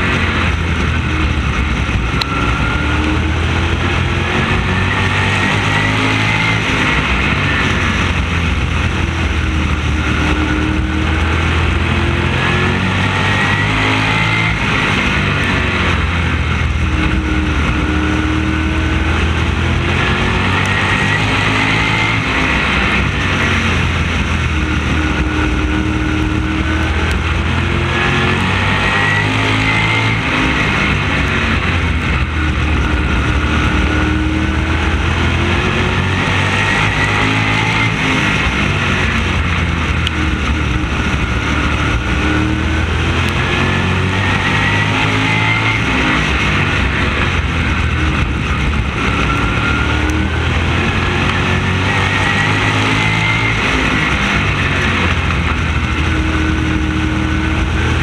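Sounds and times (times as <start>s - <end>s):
race car engine at speed: 0.0s - 58.0s.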